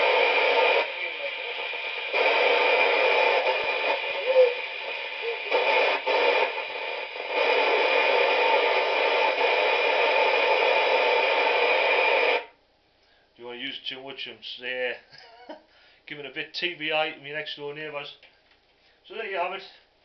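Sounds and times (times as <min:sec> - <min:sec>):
radio static hiss: 0:00.0 - 0:12.6.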